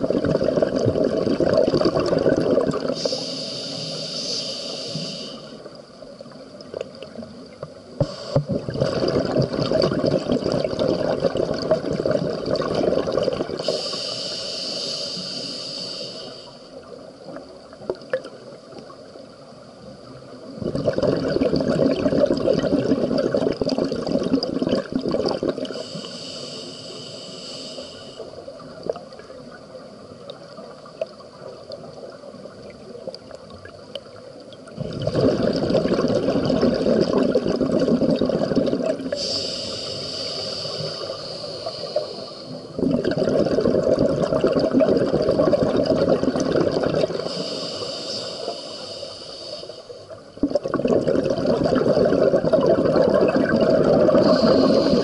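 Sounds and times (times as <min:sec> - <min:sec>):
exhaled bubbles underwater: 0:00.0 - 0:14.6, 0:20.0 - 0:26.3, 0:28.2 - 0:55.0
regulator hissing inhale: 0:02.9 - 0:05.7, 0:08.0 - 0:08.5, 0:13.6 - 0:16.8, 0:25.7 - 0:28.4, 0:39.1 - 0:42.8, 0:47.1 - 0:50.2, 0:54.1 - 0:55.0.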